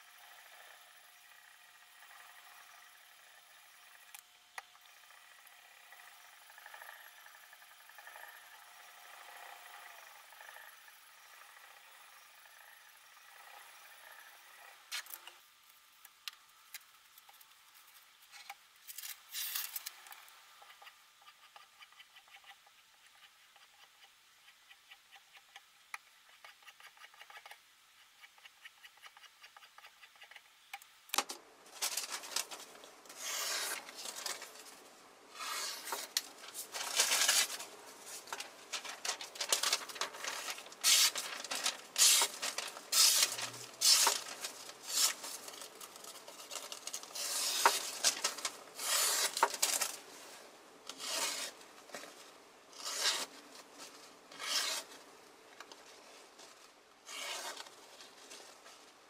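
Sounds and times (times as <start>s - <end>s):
paper rustling: 31.7s - 34.8s, 35.4s - 55.0s
knife slicing paper: 31.8s - 34.5s, 35.4s - 45.7s, 46.5s - 50.0s, 50.9s - 51.6s, 52.8s - 53.4s, 54.3s - 55.0s, 57.0s - 58.1s.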